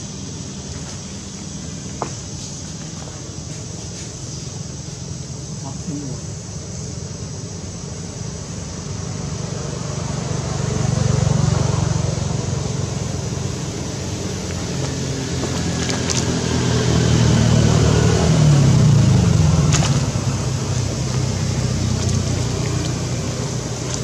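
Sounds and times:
vehicle engine passing by: 8.4 - 24.0.

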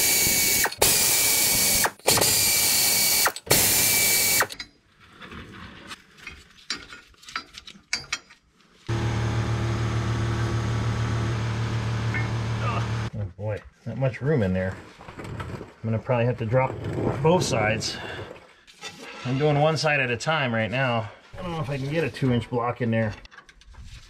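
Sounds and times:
electric ratchet spinning nut: 0.0 - 4.6.

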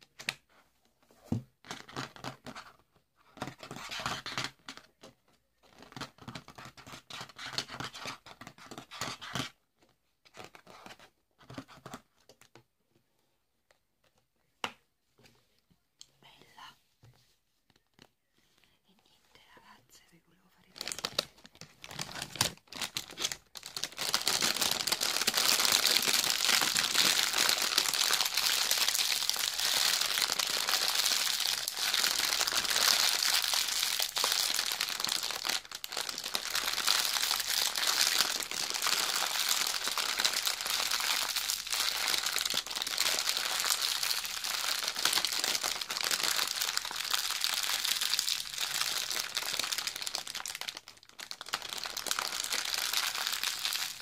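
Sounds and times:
plastic bag crinkling: 20.6 - 54.0.

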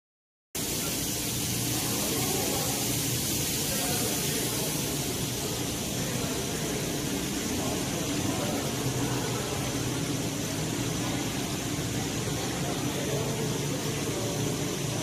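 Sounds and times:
low machinery hum: 0.6 - 15.0
machinery hiss: 0.6 - 15.0.

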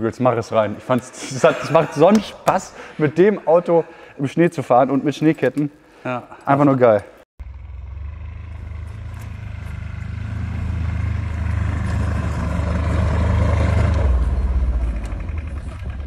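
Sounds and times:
diesel engine under load: 7.4 - 16.0
tyres churning snow: 7.9 - 16.0.

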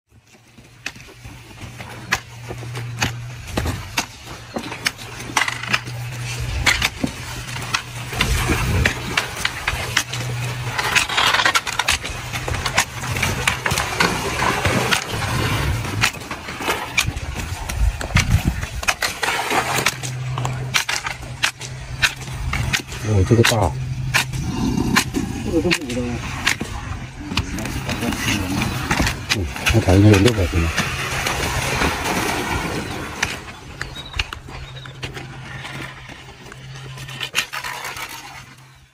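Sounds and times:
low hum: 0.2 - 38.9.

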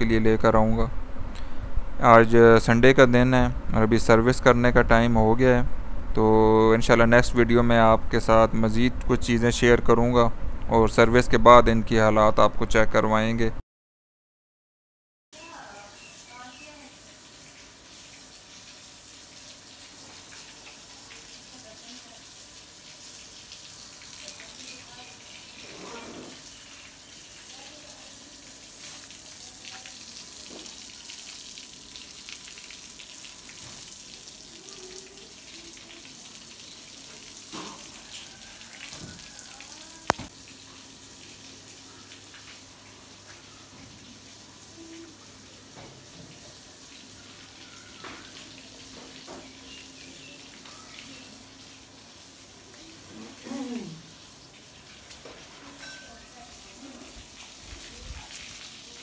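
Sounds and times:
running water hiss: 15.4 - 59.0.

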